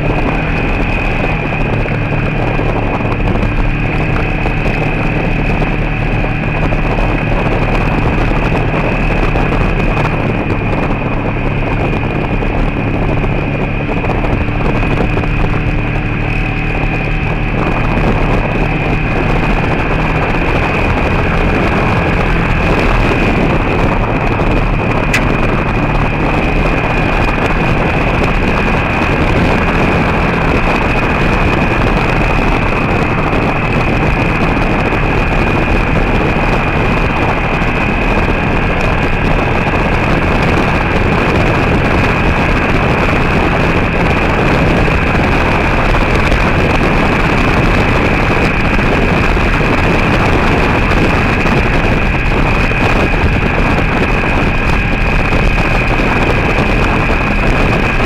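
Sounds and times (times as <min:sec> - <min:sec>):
vehicle road and tyre noise: 0:00.0 - 0:58.0.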